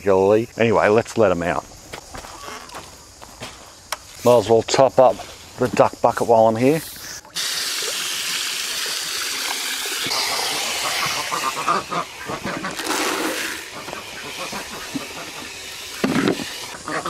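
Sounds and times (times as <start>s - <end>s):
hose water splashing into bucket: 5.0s - 17.0s.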